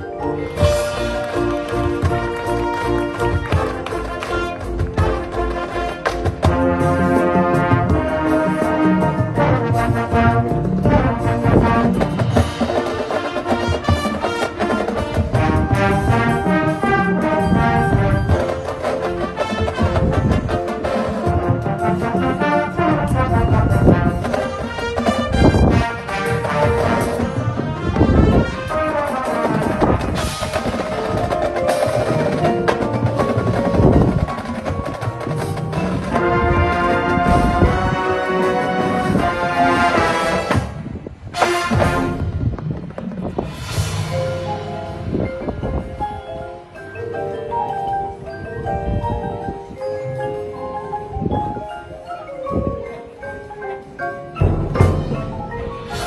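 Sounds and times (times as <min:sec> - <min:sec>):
marching band brass chords: 0:00.4 - 0:45.6, 0:54.4 - 0:56.0
drum and percussion hits: 0:00.6 - 0:38.0, 0:38.7 - 0:45.7, 0:54.3 - 0:56.0
drum hits: 0:54.4 - 0:56.0.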